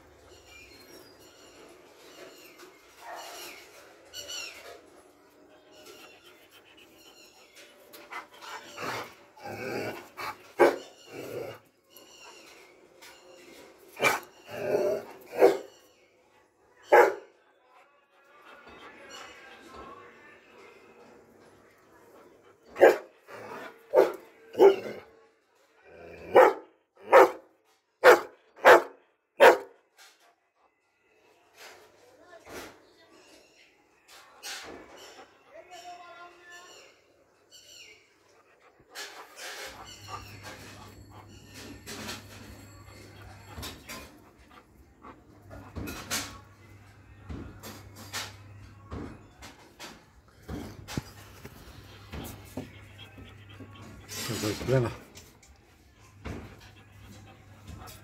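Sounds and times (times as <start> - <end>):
dog barking: 15.4 - 15.7, 16.9 - 17.3, 22.8 - 23.1, 23.9 - 24.9, 26.2 - 29.8.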